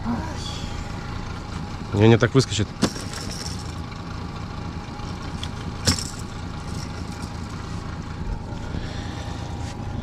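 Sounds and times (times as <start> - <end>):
boat motor idling: 0.8 - 10.0.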